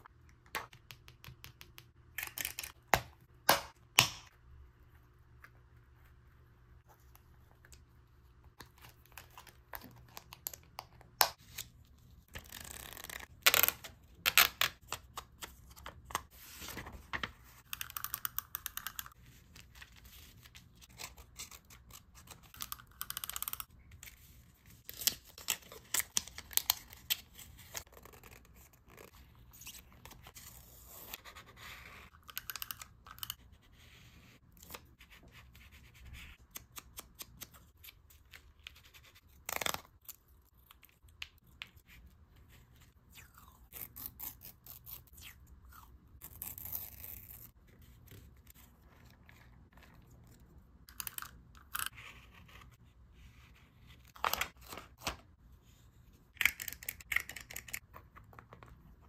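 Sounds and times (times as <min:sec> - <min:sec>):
paper and stickers rustling: 0:14.7 - 0:39.8.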